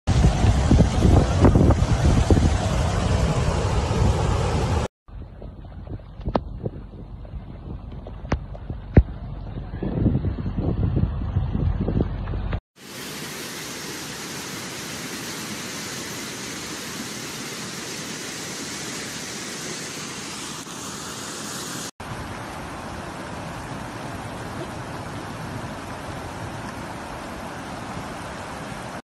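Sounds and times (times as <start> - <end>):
floodwater rushing: 0.1 - 4.9, 12.8 - 29.0.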